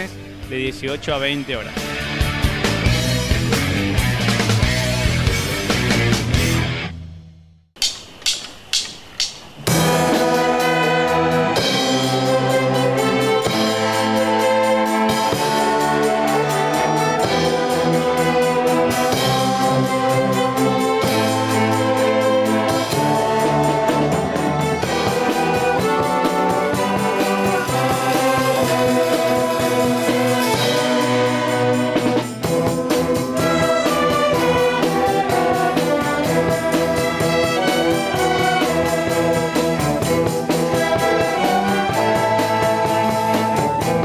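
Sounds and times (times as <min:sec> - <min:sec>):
orchestra of strings and flutes: 0:09.7 - 0:44.0.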